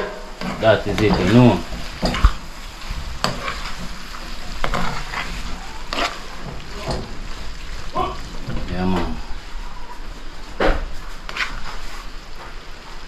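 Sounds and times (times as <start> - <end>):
food sizzling: 0.0 - 13.0
metal spoon scraping a pan: 3.2 - 7.1.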